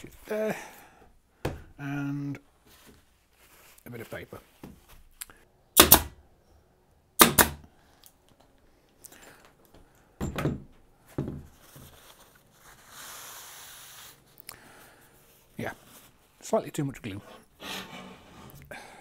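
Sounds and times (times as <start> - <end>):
pin nailer firing: 5.8 - 6.2, 7.2 - 7.6
paper towel rubbing: 11.6 - 14.3.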